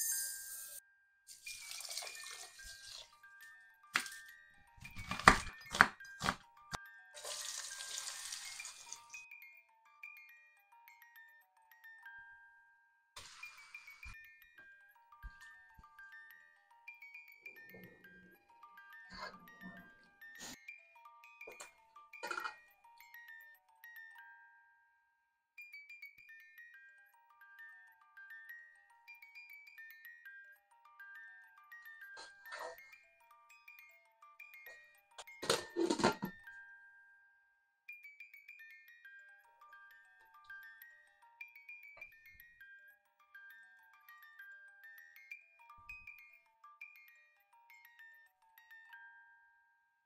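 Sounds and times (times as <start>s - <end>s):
glockenspiel-style melody: 0.0s - 50.0s
light chiming music: 0.0s - 50.0s
onion sizzling in hot oil: 7.2s - 9.0s, 13.2s - 13.9s.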